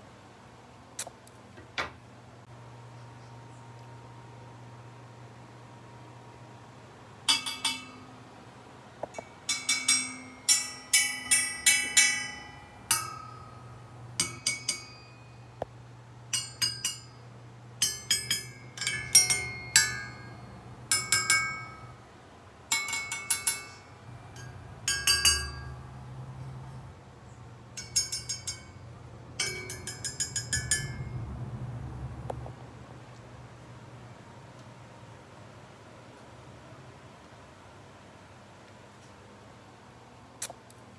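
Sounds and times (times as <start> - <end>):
knife tapping candelabrum chimes: 7.3 - 8.2, 9.1 - 15.6, 16.3 - 22.0, 22.7 - 26.1, 27.7 - 31.2.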